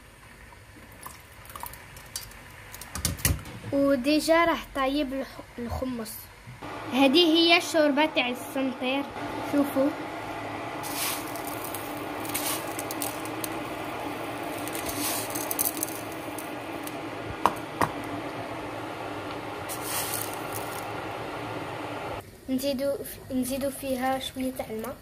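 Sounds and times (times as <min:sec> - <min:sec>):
soup simmering with hiss: 0:00.0 - 0:02.9, 0:09.2 - 0:24.0.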